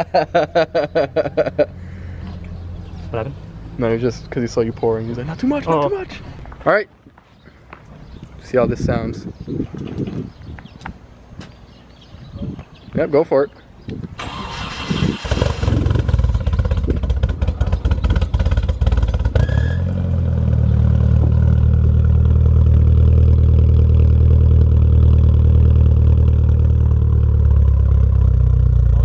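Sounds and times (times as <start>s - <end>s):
car engine idling deeply: 15.3s - 19.4s, 20.2s - 29.0s.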